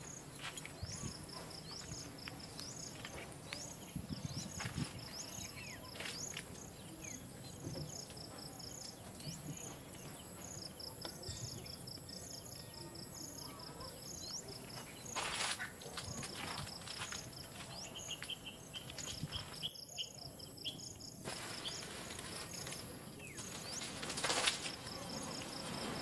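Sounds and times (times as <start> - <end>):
faint outdoor background noise: 0.0 - 26.0
insects chirping: 0.0 - 26.0
rustling: 21.2 - 26.0.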